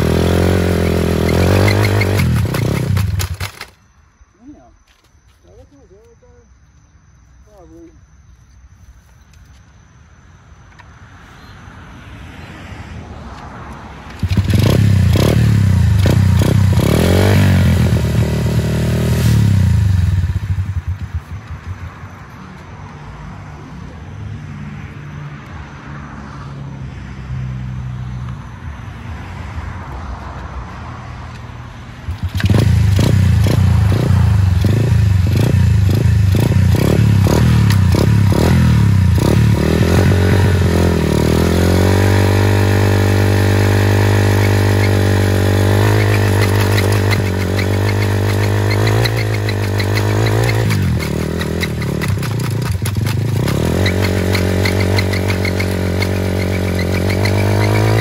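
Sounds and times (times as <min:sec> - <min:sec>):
small motorbike engine revving: 0:00.0 - 0:03.8, 0:14.1 - 0:22.1, 0:32.0 - 0:58.0.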